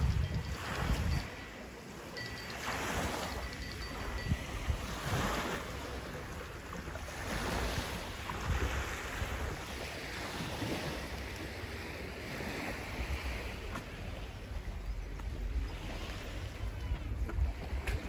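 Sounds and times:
wind rumbling on microphone: 0.0s - 1.5s, 12.4s - 18.0s
waves lapping on pebble shore: 0.0s - 18.0s.

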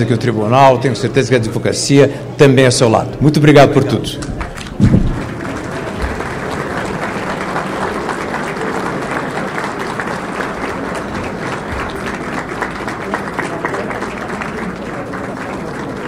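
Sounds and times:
audience applauding: 4.0s - 16.0s.

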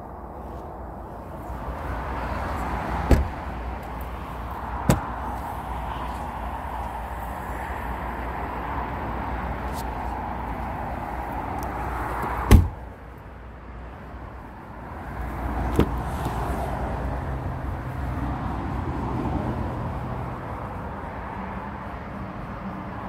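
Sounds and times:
car door thud: 3.0s - 3.4s, 4.8s - 5.1s, 12.4s - 12.8s, 15.7s - 16.0s.

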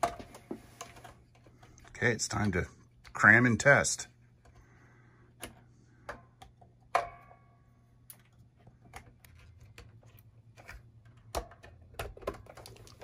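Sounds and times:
plastic pickguard clicking and knocking: 11.0s - 13.0s.

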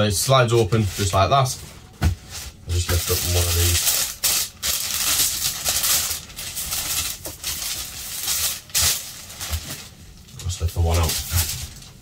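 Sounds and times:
tissue paper rustling and crinkling: 0.2s - 12.0s.

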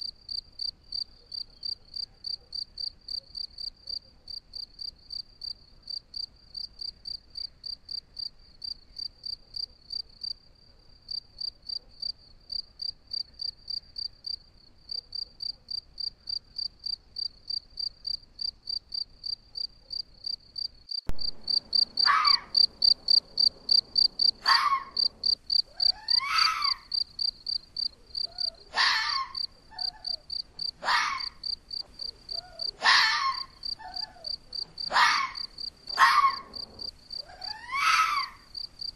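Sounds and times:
cricket chirping: 0.0s - 10.4s, 11.1s - 38.9s
fox barking: 21.3s - 27.0s, 27.9s - 38.5s.

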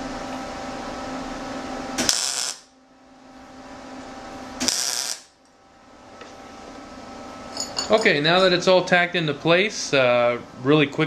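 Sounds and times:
steady hum with tones: 0.0s - 11.0s
welding arc crackle: 2.0s - 2.7s, 4.6s - 5.4s.

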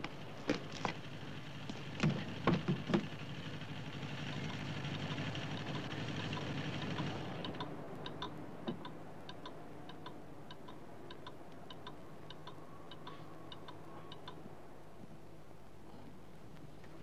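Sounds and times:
clock ticking: 5.4s - 14.4s.

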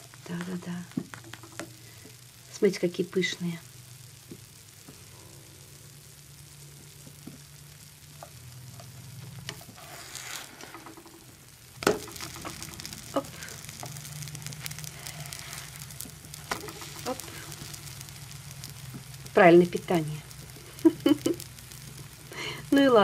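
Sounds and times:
pancakes sizzling in hot oil: 0.0s - 23.0s.

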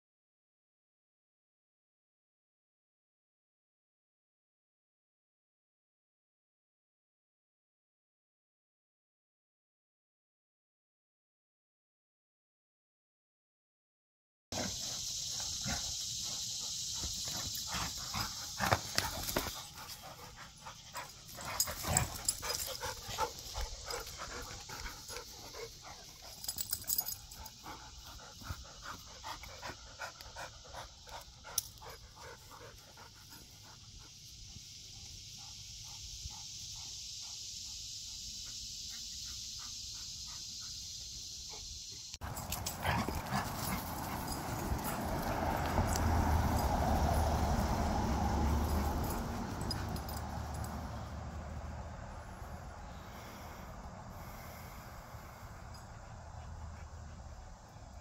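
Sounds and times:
dog panting: 14.6s - 34.3s, 42.2s - 47.0s, 54.5s - 58.0s
steady high hiss: 14.6s - 44.9s.

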